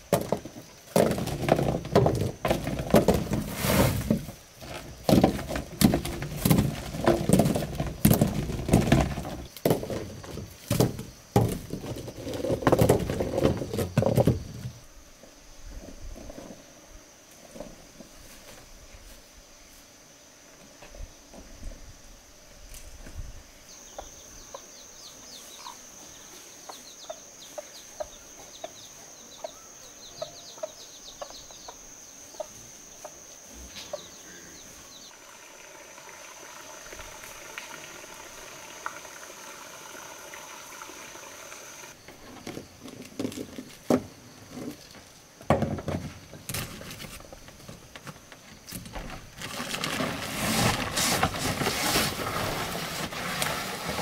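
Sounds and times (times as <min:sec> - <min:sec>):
high insect drone: 0:00.0 - 0:54.0
chicks peeping: 0:26.6 - 0:33.2.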